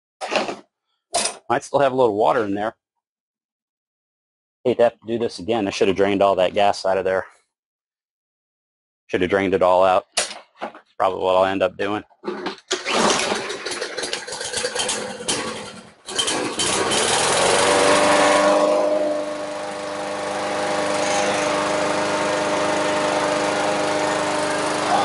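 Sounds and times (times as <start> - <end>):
lawn mower engine sputtering: 12.4 - 25.0.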